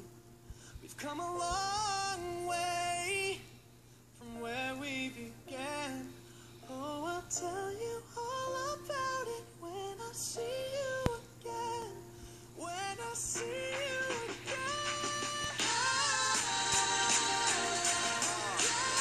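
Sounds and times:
soft backing music: 0:04.2 - 0:19.0
high sung vocal: 0:06.6 - 0:19.0.

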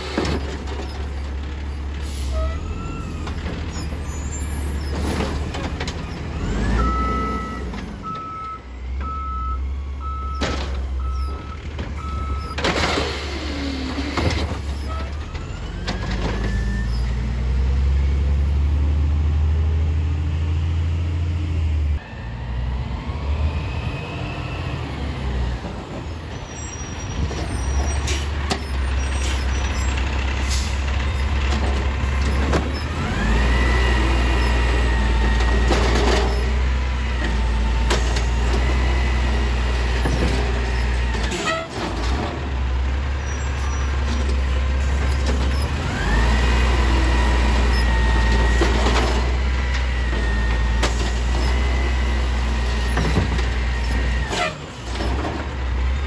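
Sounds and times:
diesel engine revving: 0:00.0 - 0:56.0
reversing beeps: 0:06.4 - 0:12.6.

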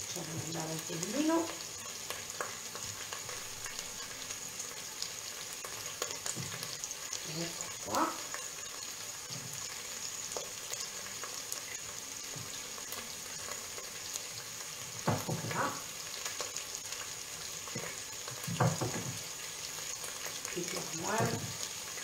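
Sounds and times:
vegetables sizzling in a pan: 0:00.0 - 0:22.0
knife knocking on cutting board: 0:15.0 - 0:15.6, 0:18.5 - 0:19.2.

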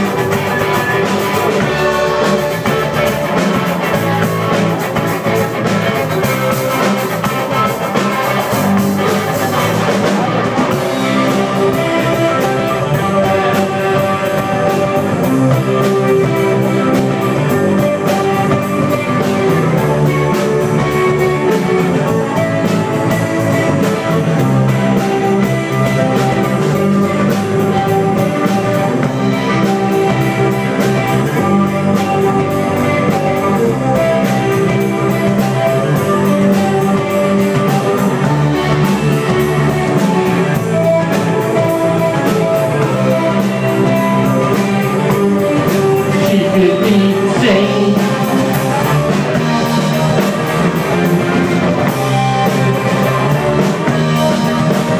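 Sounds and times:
distorted electric guitar: 0:00.0 - 0:54.9
drum kit beat: 0:00.0 - 0:54.9
electric bass: 0:00.0 - 0:54.9.

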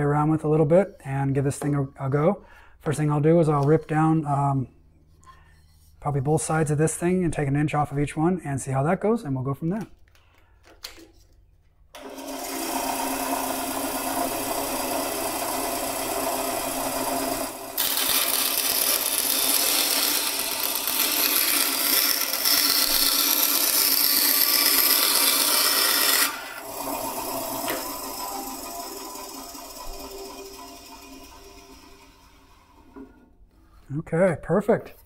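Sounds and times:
bandsaw blade cutting wood: 0:12.0 - 0:33.2
bandsaw running: 0:12.0 - 0:33.2.

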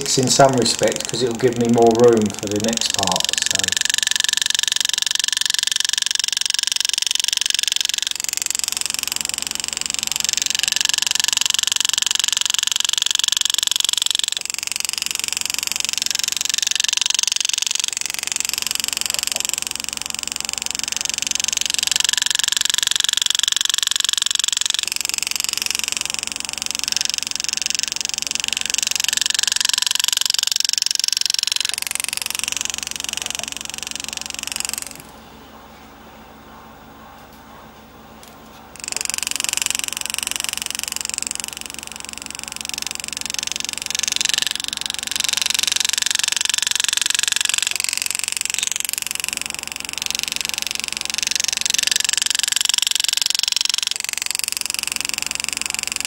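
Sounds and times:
high-pitched engraving tool buzzing: 0:00.0 - 0:35.2, 0:38.7 - 0:56.0.

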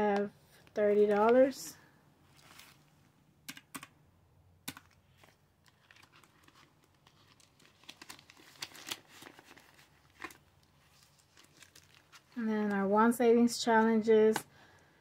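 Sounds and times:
paper crinkling: 0:02.3 - 0:03.0, 0:04.8 - 0:12.4.

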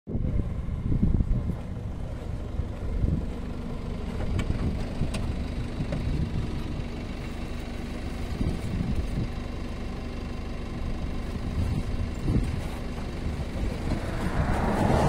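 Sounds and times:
vehicle engine idling: 0:00.1 - 0:15.0
wind buffeting microphone: 0:13.3 - 0:15.0.

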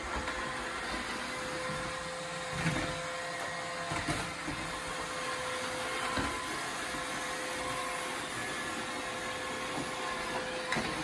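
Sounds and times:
robot vacuum whirring: 0:00.0 - 0:11.0.

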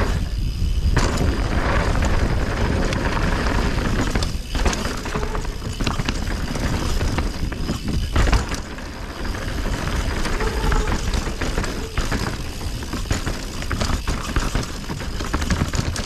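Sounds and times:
wind rushing over microphone: 0:00.0 - 0:13.9
bike knocking and rattling: 0:00.0 - 0:16.0
bike tyres rolling over dirt: 0:00.0 - 0:16.0.

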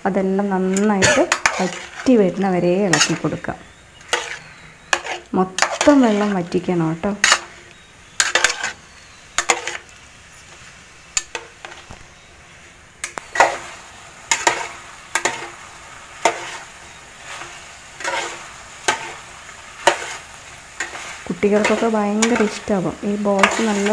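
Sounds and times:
metal spoon scraping a metal pan: 0:00.6 - 0:07.6, 0:08.2 - 0:09.9, 0:14.3 - 0:15.6, 0:16.2 - 0:23.9.

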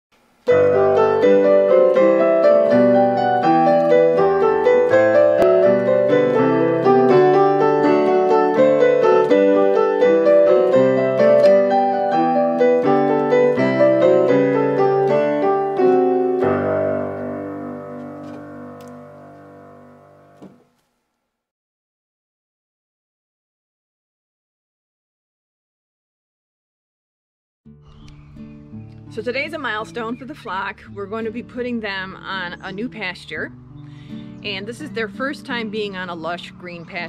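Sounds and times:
solo piano music: 0:00.4 - 0:20.6.

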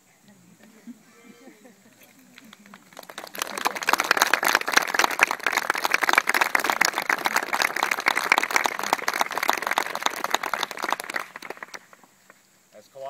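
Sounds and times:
crowd applauding: 0:02.2 - 0:12.4.

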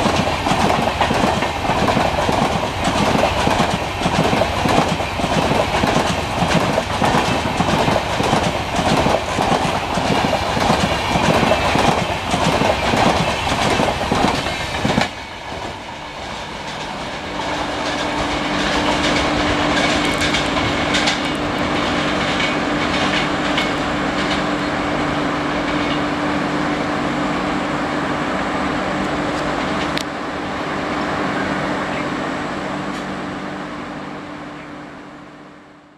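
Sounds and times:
train wheels clickety-clack: 0:00.0 - 0:24.8, 0:25.6 - 0:26.1.

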